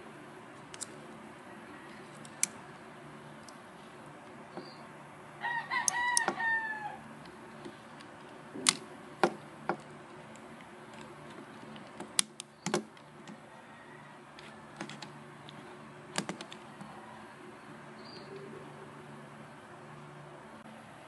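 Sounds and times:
rooster crowing: 1.3 - 2.5, 5.4 - 7.2, 13.4 - 14.8, 16.6 - 18.2.

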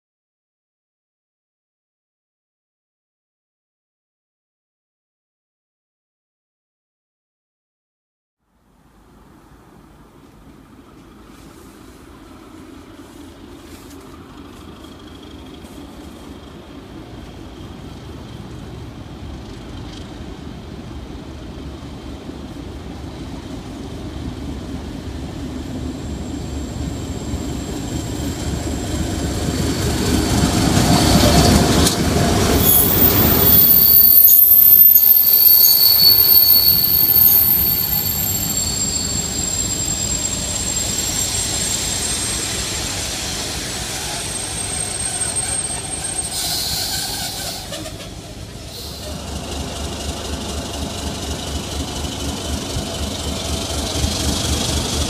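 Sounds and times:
diesel locomotive engine: 8.9 - 55.0
train wheels squealing: 25.5 - 55.0.

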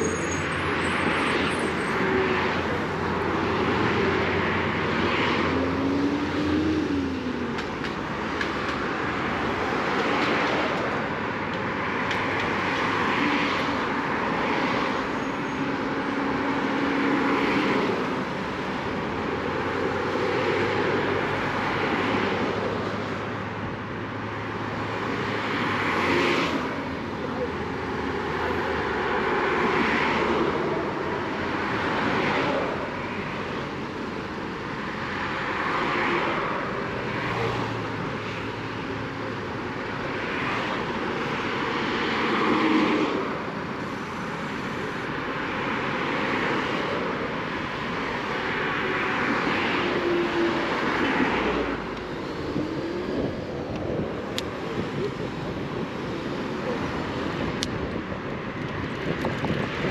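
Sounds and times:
electric scooter road noise: 0.0 - 59.9
wind rushing over microphone: 40.4 - 59.9.

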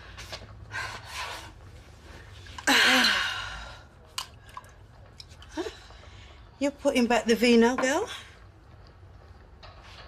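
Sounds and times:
soft breaths: 5.5 - 6.6.

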